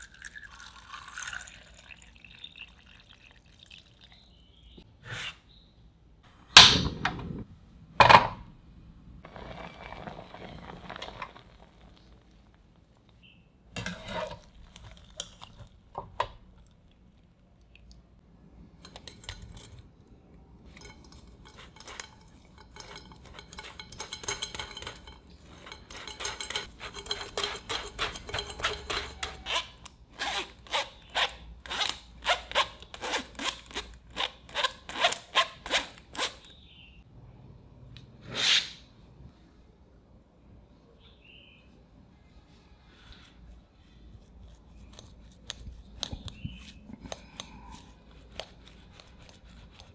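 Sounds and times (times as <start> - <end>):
potato scraped through wire sieve: 9.3 - 12.1, 20.7 - 31.2
cookware clanking: 13.8 - 15.4, 18.8 - 20.0, 20.6 - 29.6.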